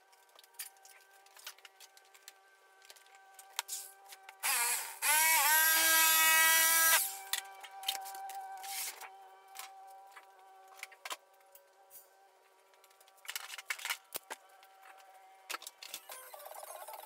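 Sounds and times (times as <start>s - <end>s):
power shear motor whine: 4.4s - 9.7s.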